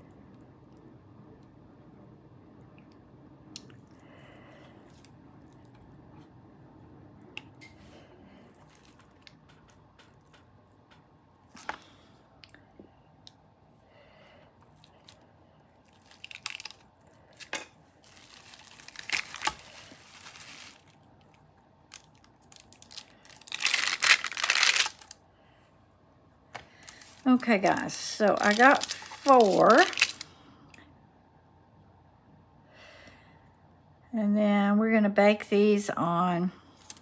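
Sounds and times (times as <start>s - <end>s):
plastic cling wrap crinkling: 8.5s - 10.4s, 15.8s - 25.2s, 26.7s - 30.3s, 36.8s - 37.0s.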